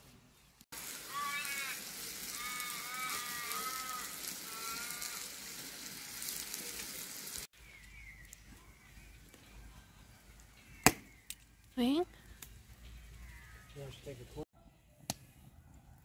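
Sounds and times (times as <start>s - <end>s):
steak sizzling on griddle: 0.7s - 7.5s.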